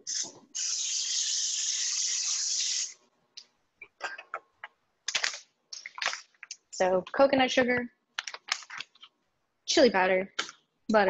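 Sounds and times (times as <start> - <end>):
steady hiss: 0.0 - 3.0.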